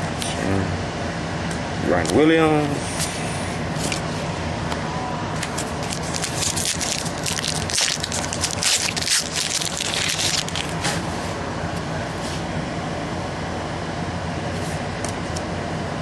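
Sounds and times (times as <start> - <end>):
steady low hum: 0.0 - 16.0
cards and wrapper crackling: 5.4 - 10.8.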